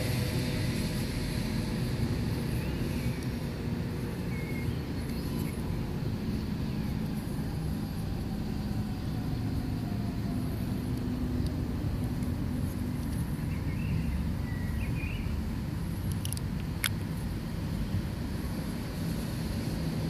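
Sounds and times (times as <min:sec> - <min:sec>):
distant engine rumble: 0:00.0 - 0:20.0
camera lens clicks: 0:16.0 - 0:17.0.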